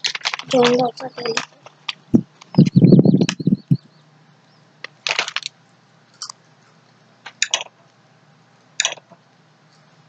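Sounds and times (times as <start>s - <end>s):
foil bag crinkling: 0.0s - 1.6s, 5.0s - 5.5s
crunching snacks: 0.0s - 2.0s, 4.9s - 5.5s.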